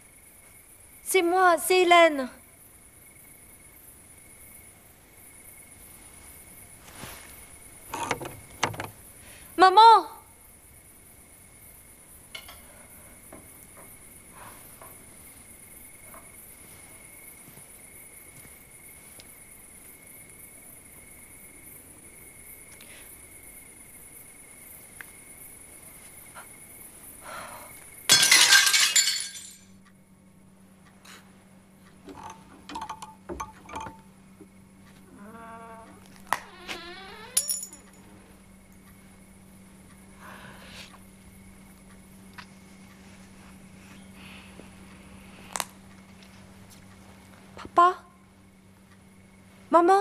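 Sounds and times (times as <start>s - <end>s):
glass shattering: 28.1s - 29.6s.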